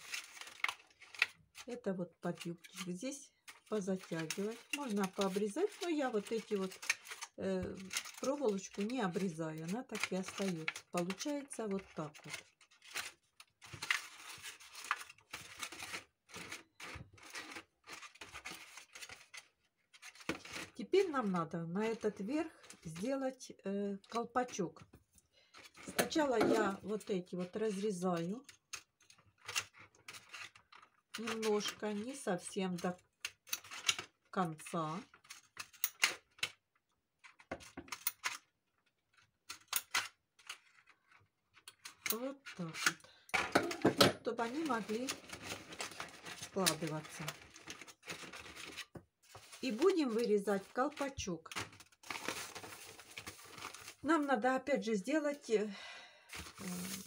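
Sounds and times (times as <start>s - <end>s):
scissors snipping plastic: 0.0s - 2.9s, 3.5s - 20.8s, 28.2s - 34.1s, 39.5s - 40.6s, 41.6s - 54.0s
plastic crinkling and rustling: 0.0s - 23.2s, 24.0s - 34.3s, 37.2s - 54.4s, 56.2s - 57.0s.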